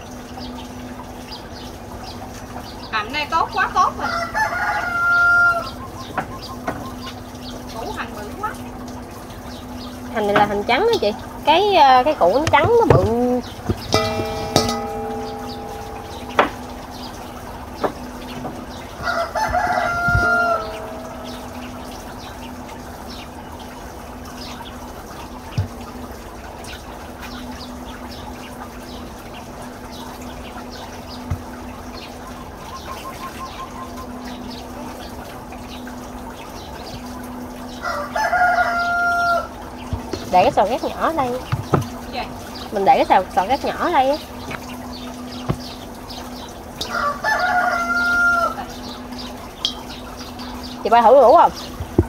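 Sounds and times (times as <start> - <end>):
rooster crowing: 4.0 - 5.8, 19.0 - 21.9, 37.8 - 39.5, 46.8 - 48.8
low hum: 8.6 - 32.6
sharp knocks: 12.4 - 22.1.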